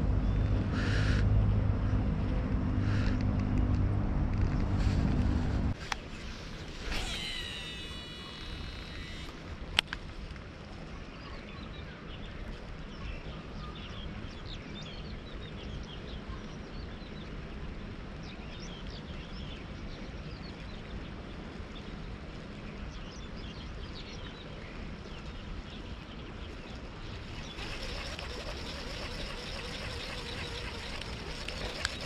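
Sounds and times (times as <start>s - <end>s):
river background noise: 0.0s - 32.0s
high bird chirps: 6.9s - 9.3s.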